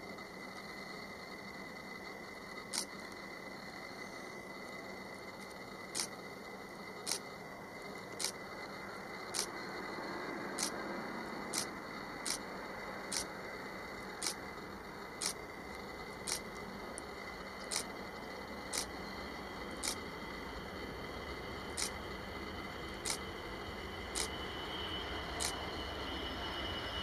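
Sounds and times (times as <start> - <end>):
faint steady background rush: 0.0 - 27.0
sharp short clicks: 2.7 - 2.9, 5.4 - 6.2, 7.0 - 7.2, 8.1 - 8.4, 9.4 - 9.6, 10.6 - 10.8, 11.5 - 12.4, 13.1 - 13.3, 14.2 - 14.4, 15.2 - 15.4, 16.2 - 17.9, 18.7 - 18.9, 19.8 - 20.0, 21.8 - 22.0, 23.0 - 23.2, 24.2 - 24.4, 25.4 - 25.6.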